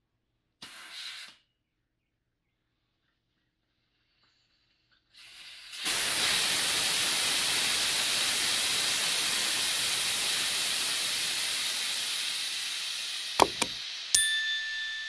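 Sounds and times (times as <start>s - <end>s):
air hissing out of tire: 5.8s - 13.3s.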